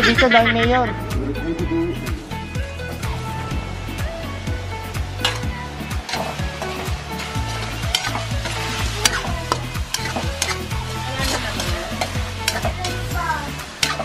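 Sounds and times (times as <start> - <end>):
meat sizzling in a wok: 2.2 - 14.0
utensil scraping a metal pan: 6.1 - 13.1.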